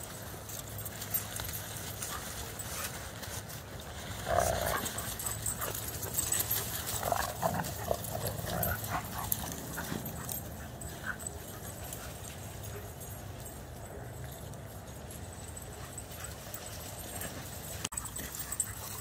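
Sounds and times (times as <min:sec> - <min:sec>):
dogs vocalizing: 0:04.2 - 0:12.2.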